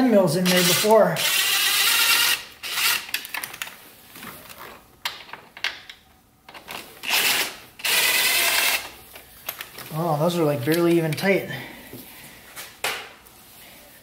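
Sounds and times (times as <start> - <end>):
power driver whirring: 0.5 - 3.1, 7.0 - 8.9.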